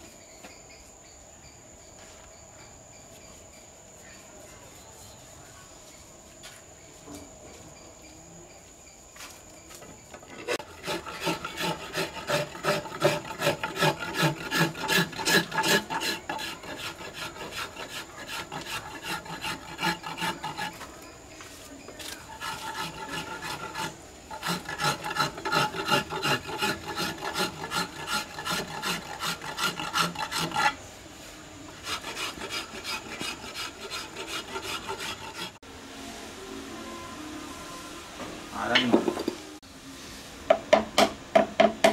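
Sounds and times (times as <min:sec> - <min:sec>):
hand file rasping on wood: 0:10.5 - 0:20.9, 0:22.3 - 0:30.8, 0:31.8 - 0:35.6.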